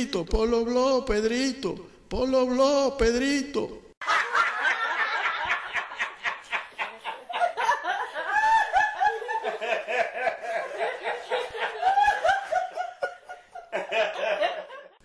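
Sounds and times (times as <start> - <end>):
person laughing hard: 4.1 - 15.0.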